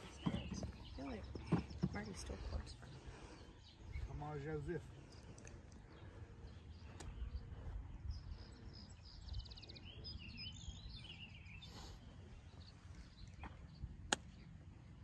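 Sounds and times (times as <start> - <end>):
wind rumbling on microphone: 0.0 - 11.6
birds chirping faintly: 0.0 - 15.0.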